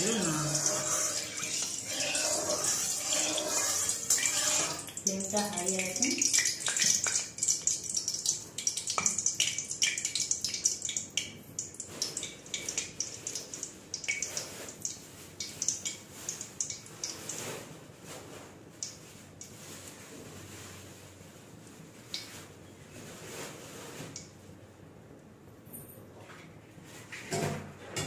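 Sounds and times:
oil crackling and popping: 0:00.0 - 0:17.5.

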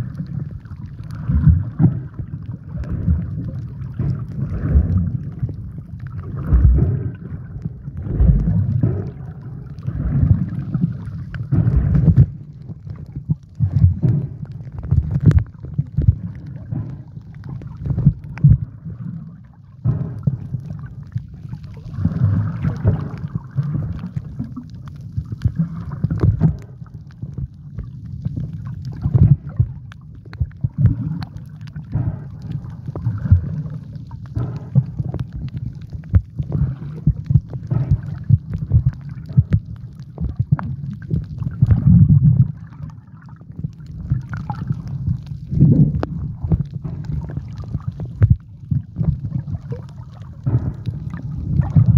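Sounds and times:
muffled underwater rumble: 0:00.0 - 0:51.9
small clicks and crackles: 0:00.0 - 0:51.9.

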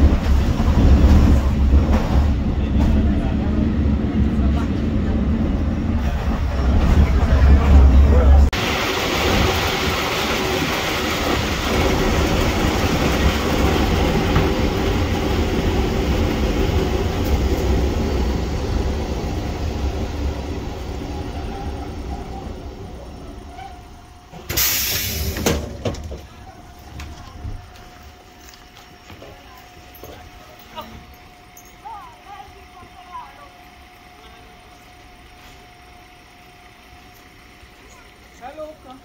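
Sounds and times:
train rumbling on rails: 0:00.0 - 0:39.0
sudden loud hiss: 0:24.4 - 0:26.0.

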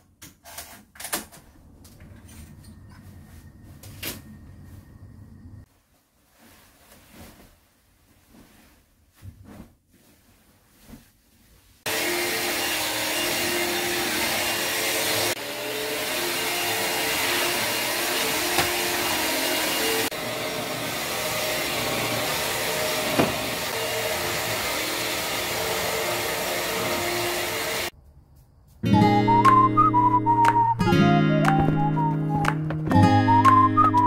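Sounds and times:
duvet rustling: 0:05.7 - 0:11.9
stick vacuum cleaner running: 0:11.9 - 0:27.9.

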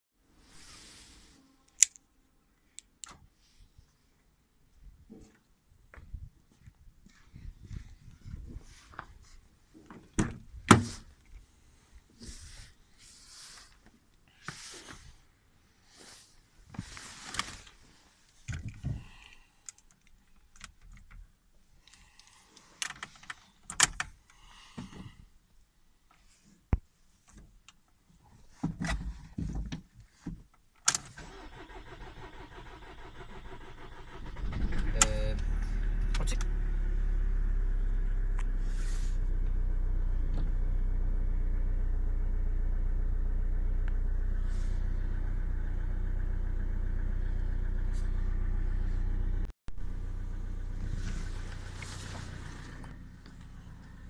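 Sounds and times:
diesel engine starting and idling: 0:31.0 - 0:54.0.

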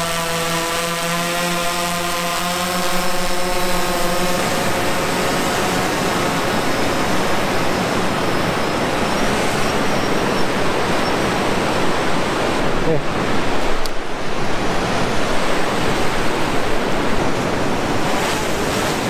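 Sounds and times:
drone propellers whining: 0:00.0 - 0:19.0
wind: 0:00.0 - 0:19.0
surf rushing: 0:02.8 - 0:19.0.

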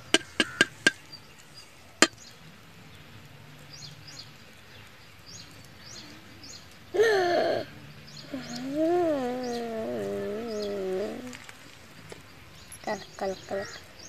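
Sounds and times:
egg cracking on metal plate: 0:00.0 - 0:01.0
faint bird chirps: 0:03.7 - 0:14.0
loud wavering cry: 0:08.3 - 0:11.4.

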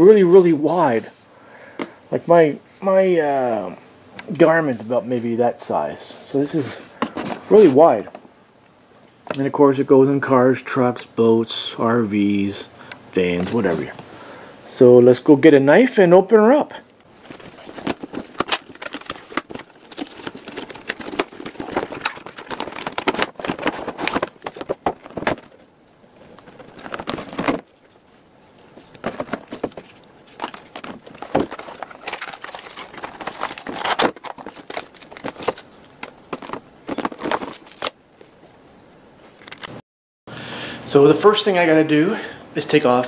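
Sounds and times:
packaging rustling and crinkling: 0:17.0 - 0:38.4.

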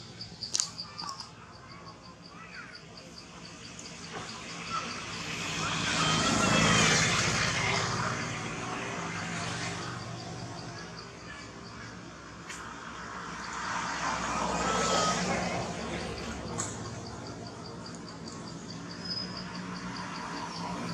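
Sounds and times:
insect chirping: 0:00.0 - 0:06.7, 0:15.8 - 0:20.9
motor vehicle passing: 0:12.6 - 0:20.9.

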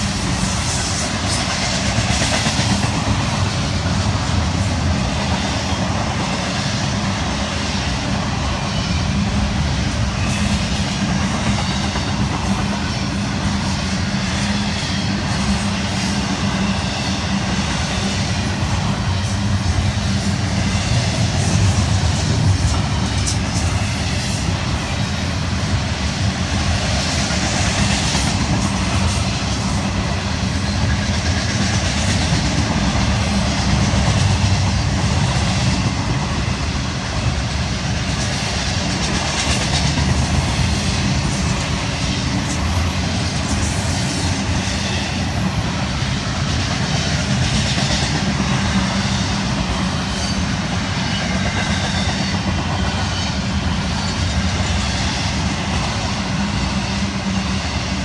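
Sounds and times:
freight train wheels rumbling on rails: 0:00.0 - 0:58.0
train wheel clicks: 0:37.4 - 0:44.7.

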